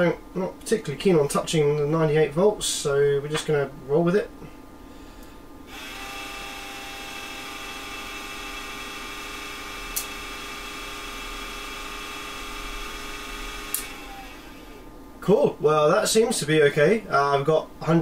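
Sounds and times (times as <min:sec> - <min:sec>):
electrical whine of power supply: 0:00.0 - 0:18.0
sharp click: 0:09.9 - 0:10.2, 0:13.7 - 0:13.9.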